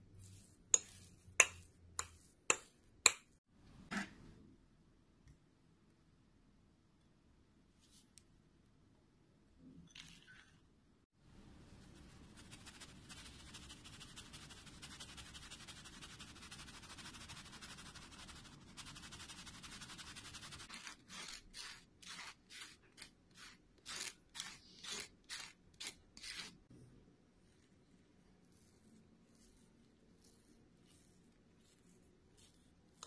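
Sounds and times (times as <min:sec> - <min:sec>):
powder rasping through mesh sieve: 0:00.1 - 0:02.7.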